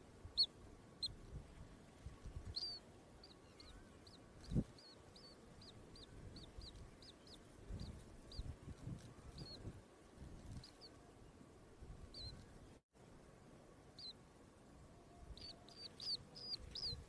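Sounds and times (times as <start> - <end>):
chicks peeping: 2.4 - 3.4, 4.0 - 9.7, 15.3 - 17.0.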